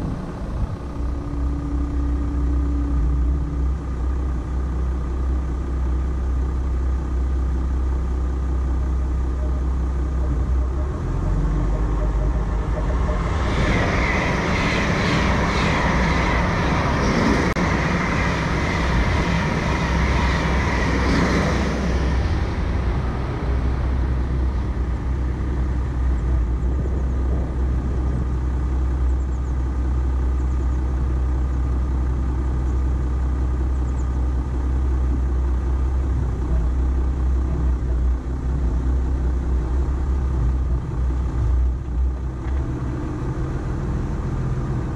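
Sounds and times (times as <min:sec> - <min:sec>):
rushing noise with crackle: 0:00.0 - 0:03.4, 0:09.4 - 0:30.3
pickup engine rumble: 0:00.0 - 0:44.9.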